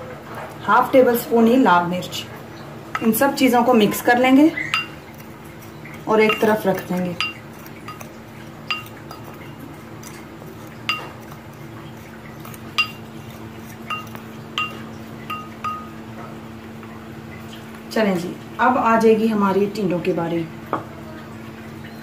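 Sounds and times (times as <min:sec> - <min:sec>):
faint steady hum: 0:00.0 - 0:22.0
ceramic spoon clinking on bowl: 0:04.7 - 0:05.1, 0:06.2 - 0:08.1, 0:08.7 - 0:09.4, 0:10.8 - 0:11.3, 0:12.7 - 0:16.0.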